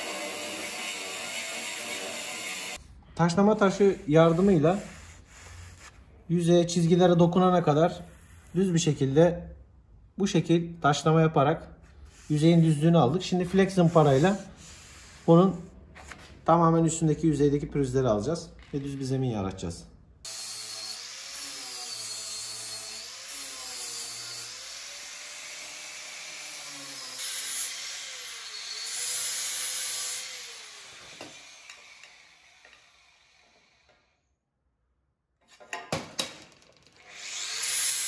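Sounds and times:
angle grinder sanding metal: 0.0s - 2.8s, 3.6s - 5.8s, 20.3s - 33.2s, 37.1s - 38.0s.

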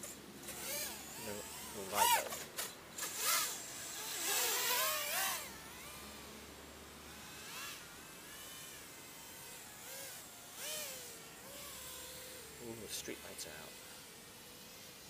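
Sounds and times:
drone motors whining: 0.0s - 15.0s.

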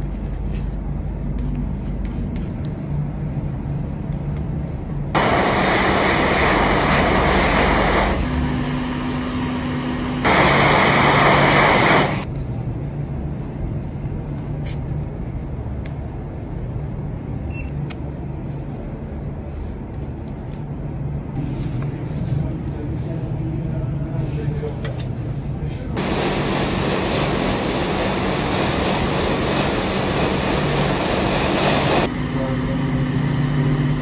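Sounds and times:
steady low hum: 0.0s - 34.0s
hot air station hissing: 5.2s - 12.3s, 25.9s - 34.0s.

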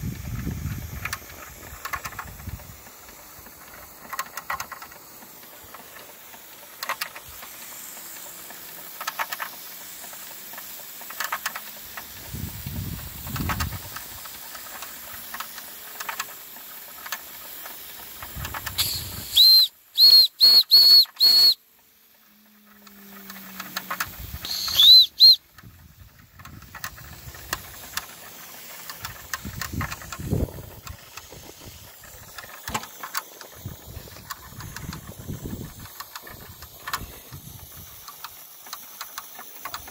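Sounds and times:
steam hissing: 0.0s - 39.9s
shrill steam whistle toots: 18.6s - 21.7s, 22.3s - 25.6s.

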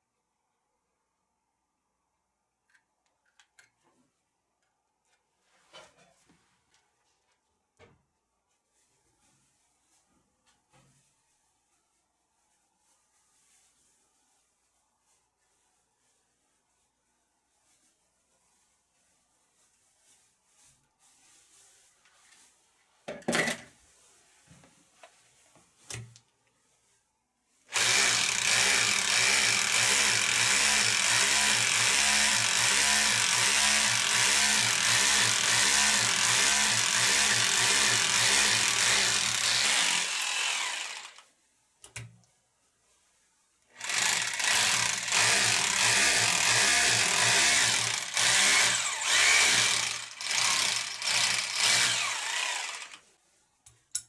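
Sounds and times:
rotary hammer drilling into wall: 27.7s - 41.2s, 43.8s - 53.0s.

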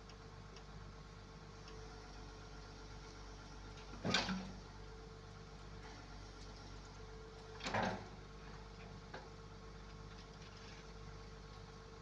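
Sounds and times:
loud metal clunk: 7.6s - 8.2s.

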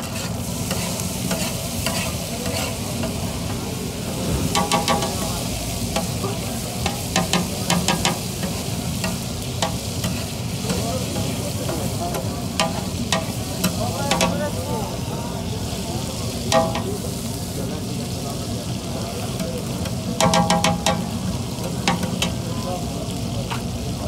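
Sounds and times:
metal spatula scraping griddle: 0.0s - 3.2s, 6.8s - 14.4s
food sizzling on griddle: 0.0s - 24.0s.

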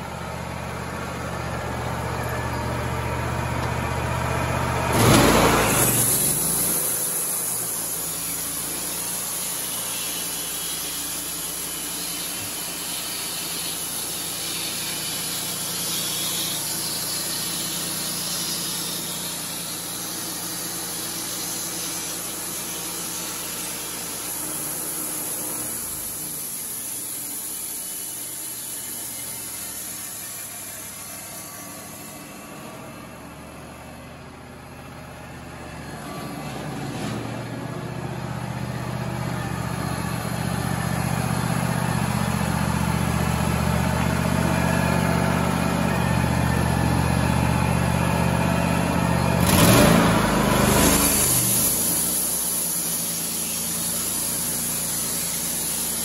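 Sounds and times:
sawmill engine running: 0.0s - 56.0s
band blade sawing wood: 5.0s - 31.0s.

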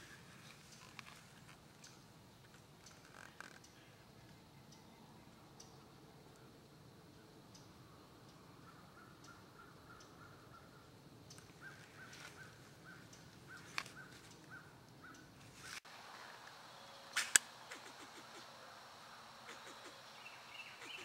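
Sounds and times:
sharp cracks: 17.1s - 18.4s
squirrel barking: 17.2s - 21.0s.

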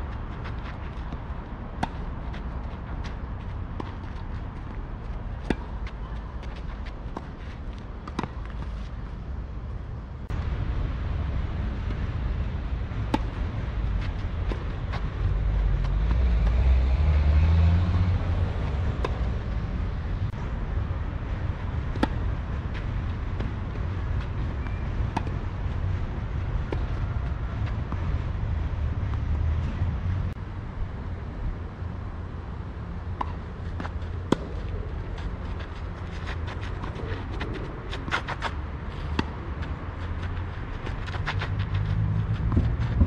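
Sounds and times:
steady low rumble: 0.0s - 16.6s, 17.9s - 43.0s
tennis ball struck by rackets: 21.9s - 22.3s, 33.2s - 34.6s.

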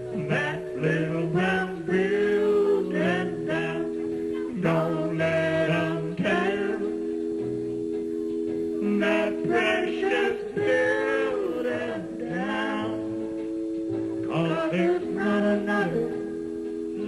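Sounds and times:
backing chords: 0.0s - 17.0s
man singing into a microphone: 0.1s - 7.0s, 8.8s - 13.3s, 14.3s - 16.3s.

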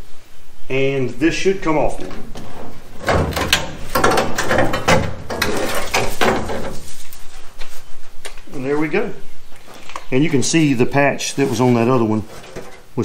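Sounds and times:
sheet metal creaking and crackling: 1.8s - 7.4s, 9.7s - 13.0s.

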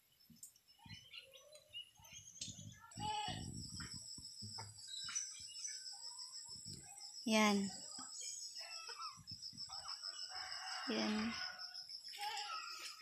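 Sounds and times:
small birds chirping: 0.0s - 13.0s
high insect drone: 3.1s - 13.0s.

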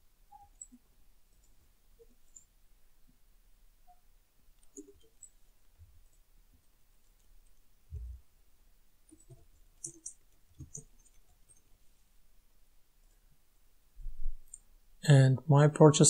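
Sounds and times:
computer mouse clicks: 4.6s - 5.4s, 9.1s - 11.7s.

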